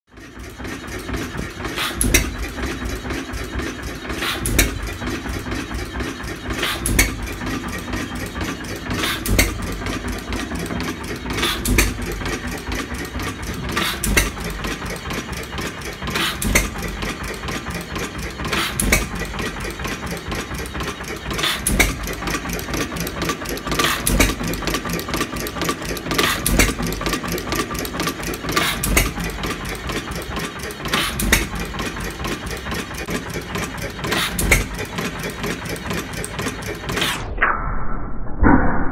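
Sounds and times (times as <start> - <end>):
engine mechanical clatter: 0.1 - 37.4
hit-and-miss engine firing: 0.7 - 37.4.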